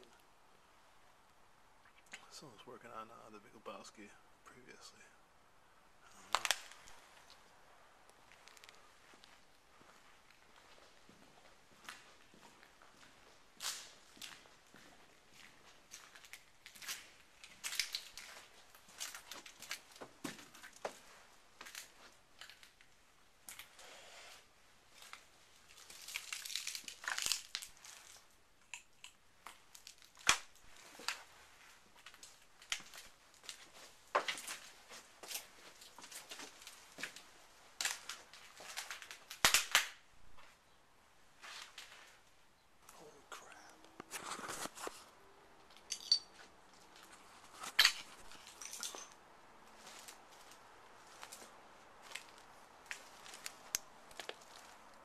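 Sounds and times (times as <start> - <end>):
debris crunching underfoot: 6.1 - 7.5, 8.1 - 23.8, 24.9 - 28.4, 29.4 - 40.5, 44.1 - 55.0.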